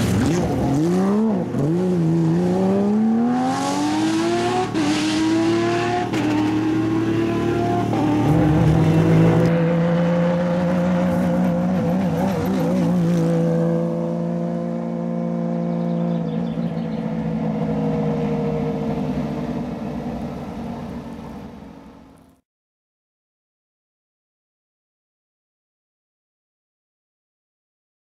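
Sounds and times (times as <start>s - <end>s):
car engine rolling past: 0.0s - 22.2s.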